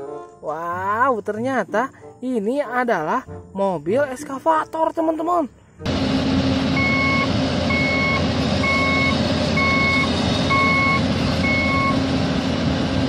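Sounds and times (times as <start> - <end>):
engine running: 5.8 - 13.0
backup alarm beeping: 6.7 - 12.1.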